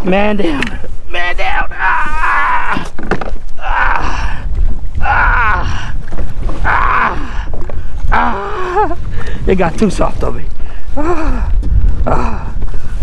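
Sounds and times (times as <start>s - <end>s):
water sloshing: 4.2s - 11.0s
man grunting and straining: 6.6s - 9.0s, 11.0s - 12.6s.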